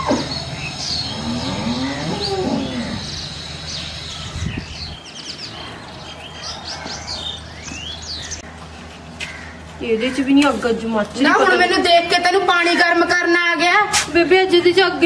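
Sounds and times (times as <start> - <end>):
birds chirping: 0.0 - 13.6
cow mooing: 1.0 - 3.2.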